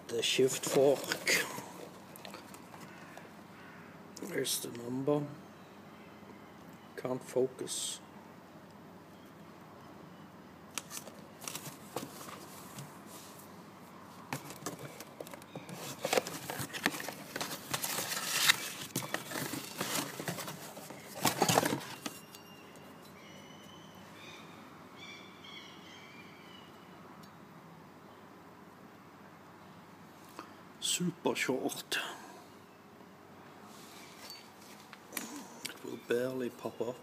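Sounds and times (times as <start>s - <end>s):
cardboard and paper rustling: 0.5s - 3.2s, 10.8s - 13.5s, 14.2s - 22.3s.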